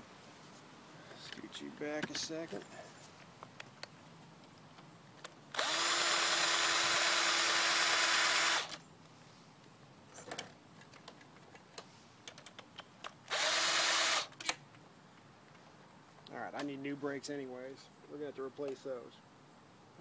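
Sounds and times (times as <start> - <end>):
power drill whining: 5.5 - 8.8, 13.3 - 14.4.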